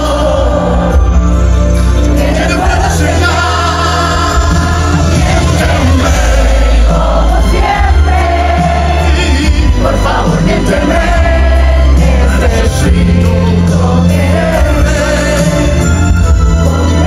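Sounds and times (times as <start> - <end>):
pop song with heavy bass: 0.0 - 17.0.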